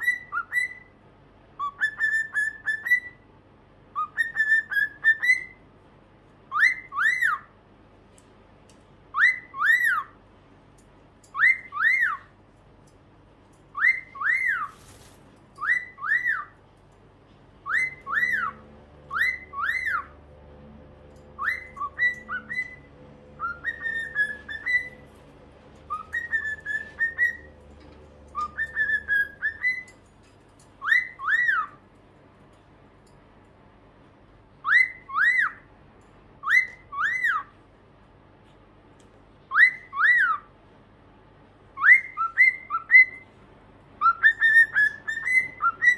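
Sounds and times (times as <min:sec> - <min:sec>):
cockatiels whistling: 0:00.0 - 0:00.9, 0:01.6 - 0:03.2, 0:03.9 - 0:05.6, 0:06.5 - 0:07.5, 0:09.1 - 0:10.2, 0:11.3 - 0:12.3, 0:13.7 - 0:14.9, 0:15.6 - 0:16.6, 0:17.6 - 0:20.2, 0:21.4 - 0:25.1, 0:25.9 - 0:27.7, 0:28.3 - 0:30.0, 0:30.8 - 0:31.8, 0:34.6 - 0:35.7, 0:36.4 - 0:37.5, 0:39.5 - 0:40.5, 0:41.8 - 0:43.2, 0:44.0 - 0:45.9.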